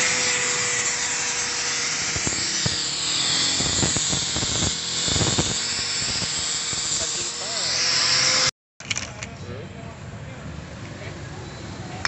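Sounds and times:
angle grinder grinding metal: 0:00.0 - 0:08.5.

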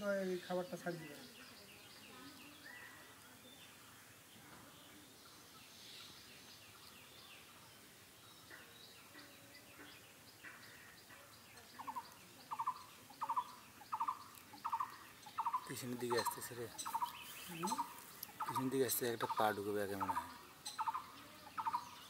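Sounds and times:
bird calling: 0:08.4 - 0:22.0.

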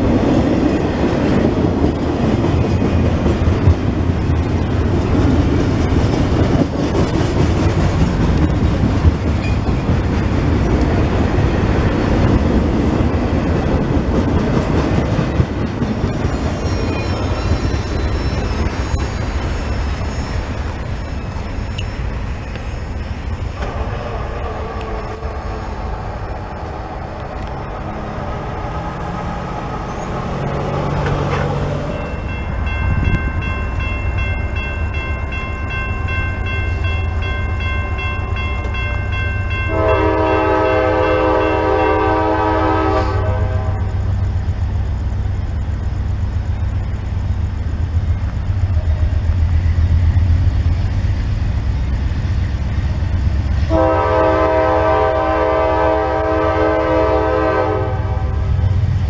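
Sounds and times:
locomotive engine rumble: 0:00.0 - 0:59.0
crossing bell ringing: 0:09.4 - 0:10.2, 0:16.0 - 0:22.1, 0:30.7 - 0:42.8
train air horn blasts: 0:39.6 - 0:44.0, 0:53.6 - 0:58.5.

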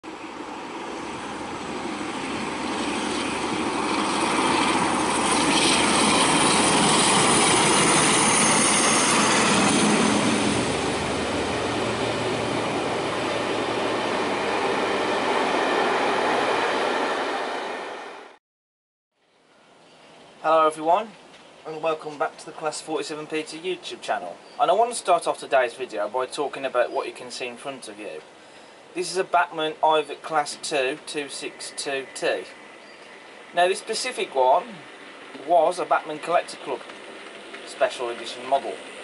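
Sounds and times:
diesel locomotive passing: 0:00.0 - 0:18.4, 0:30.1 - 0:39.0
train wheels on rails: 0:00.4 - 0:18.3, 0:32.5 - 0:39.0.

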